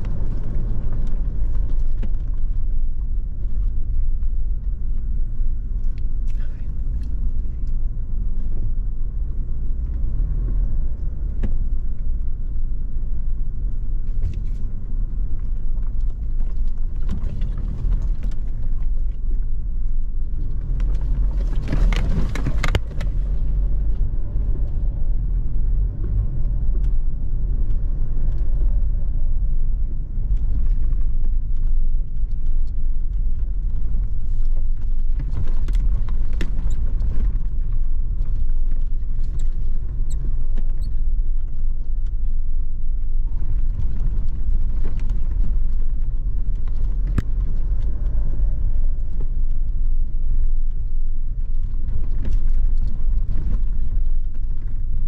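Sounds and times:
car engine and tyres rumbling: 0.0 - 55.0.

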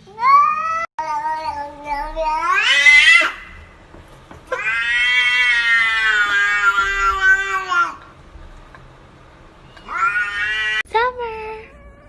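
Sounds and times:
cat meowing: 0.1 - 3.7, 4.4 - 8.1, 9.6 - 10.8, 11.6 - 12.0.

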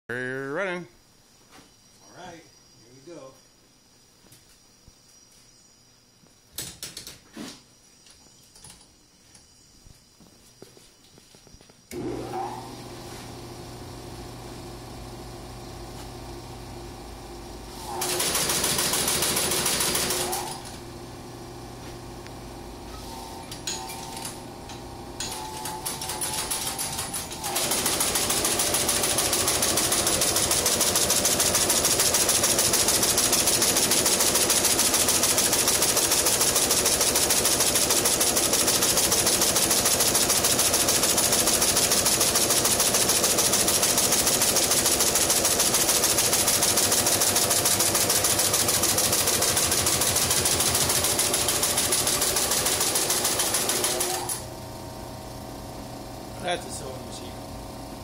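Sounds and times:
sewing machine motor hum: 11.9 - 58.0
sewing machine stitching clatter: 17.9 - 20.8, 25.2 - 54.4.

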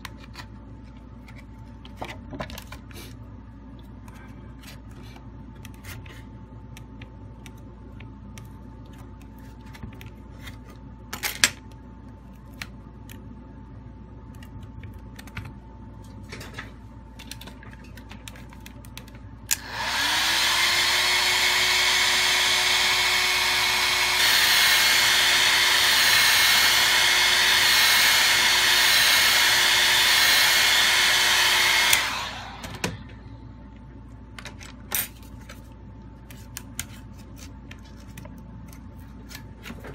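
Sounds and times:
hot air gun blowing: 19.5 - 32.8.

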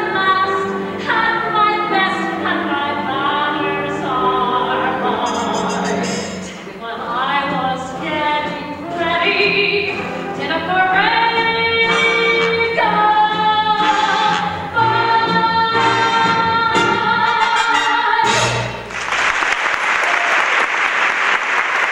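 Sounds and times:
woman singing show tune: 0.0 - 18.6
musical accompaniment: 0.0 - 19.0
audience applauding: 18.9 - 21.9.

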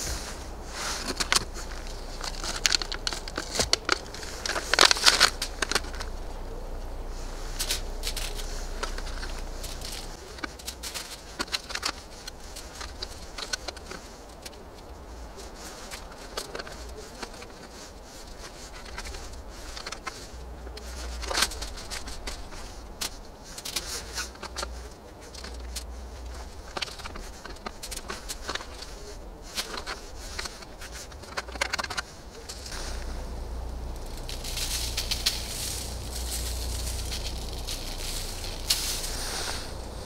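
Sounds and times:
low rumble: 0.0 - 13.8, 32.1 - 40.0
aluminium foil crinkling: 0.0 - 40.0.

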